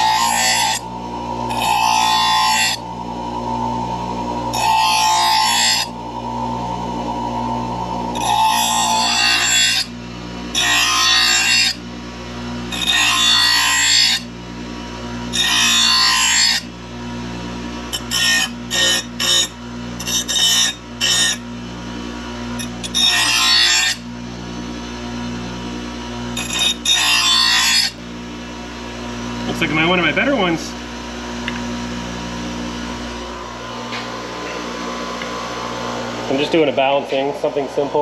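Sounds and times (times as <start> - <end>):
steel blade grinding on wheel: 0.0 - 11.8, 12.7 - 14.3, 15.3 - 16.7, 17.9 - 21.4, 22.6 - 24.0, 26.3 - 28.0
bench grinder running: 0.0 - 38.0.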